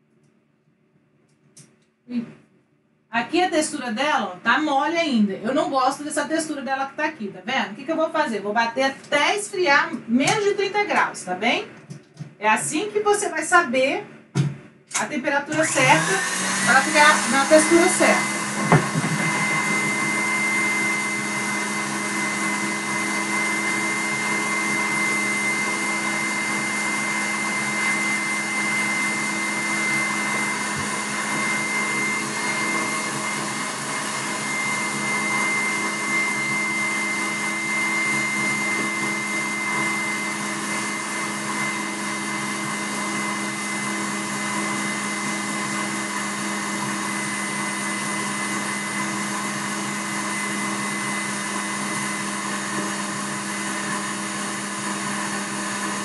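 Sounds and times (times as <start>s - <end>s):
stand mixer whisking: 15.5s - 56.0s.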